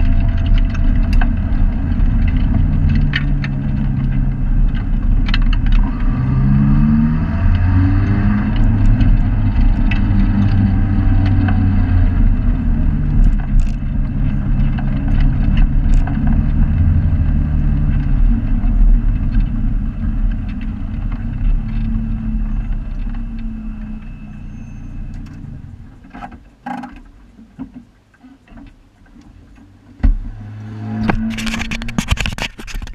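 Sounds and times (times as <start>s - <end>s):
car engine revving: 0.0s - 26.0s, 30.0s - 32.0s
scattered knocks and clicks: 13.0s - 23.5s, 31.0s - 32.9s.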